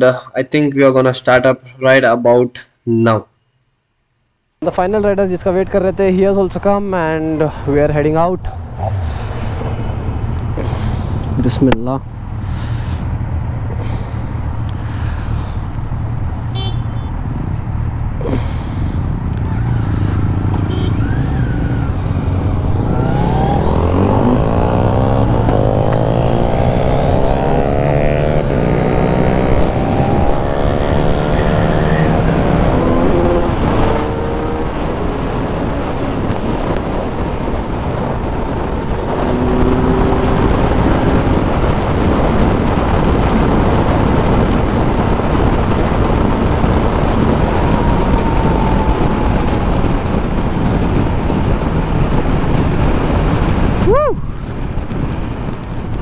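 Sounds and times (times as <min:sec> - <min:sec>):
wind rush: 0:04.8 - 0:56.0
motorcycle engine accelerating: 0:19.2 - 0:56.0.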